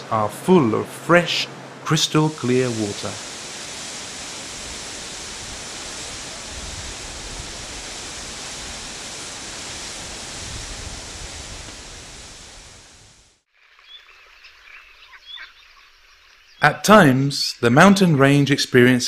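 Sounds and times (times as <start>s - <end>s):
stream water rushing: 0.0s - 13.0s
faint chirps: 13.7s - 17.8s.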